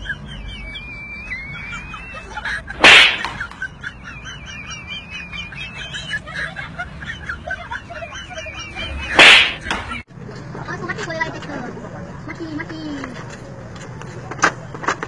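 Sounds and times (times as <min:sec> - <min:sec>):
sharp slap: 0:02.8 - 0:03.6, 0:09.2 - 0:10.0.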